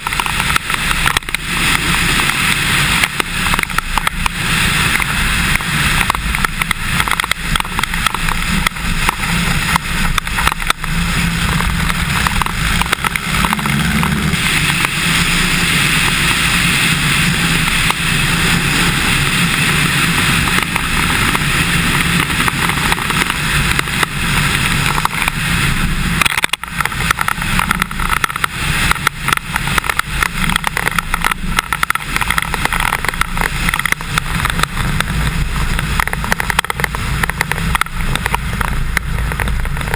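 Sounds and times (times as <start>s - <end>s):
light aircraft engine and propeller: 0.0s - 39.9s
wind noise on microphone: 0.0s - 39.9s.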